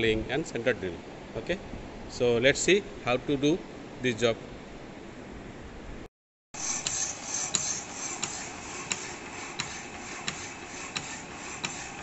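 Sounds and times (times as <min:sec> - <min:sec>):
power hacksaw rasping: 0:06.6 - 0:12.0
hacksaw stroke clicks: 0:06.8 - 0:12.0.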